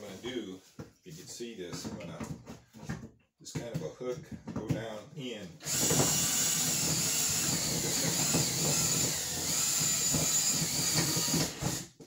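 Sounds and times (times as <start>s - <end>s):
cordless drill running: 5.6s - 12.0s.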